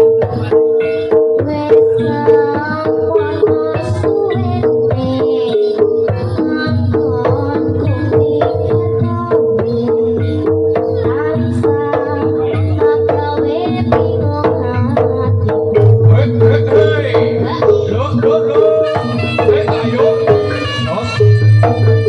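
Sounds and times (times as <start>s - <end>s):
hand drum rhythmic strokes: 0.0s - 22.0s
pitched melody notes: 14.3s - 22.0s
deep bass: 15.8s - 18.5s.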